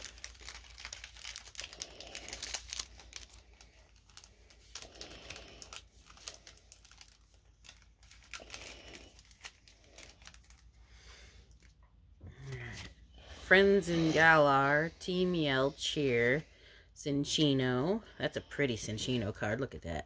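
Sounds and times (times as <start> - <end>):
foil wrapper crinkling and tearing: 0.0 - 11.8.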